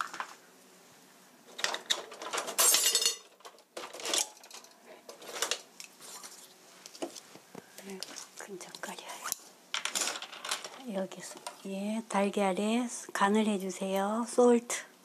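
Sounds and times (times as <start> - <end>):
dishes and utensils clinking: 1.5 - 5.7.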